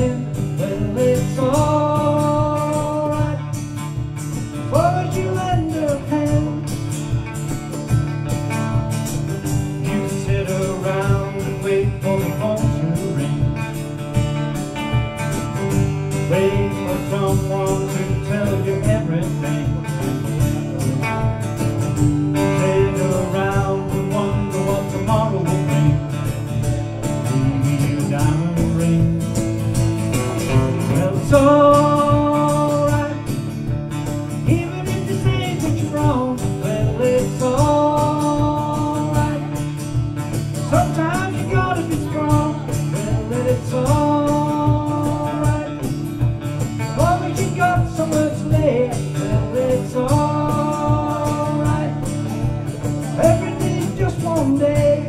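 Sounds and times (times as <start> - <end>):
man singing: 0.0 - 7.8, 8.6 - 55.0
acoustic guitar strumming: 0.0 - 55.0.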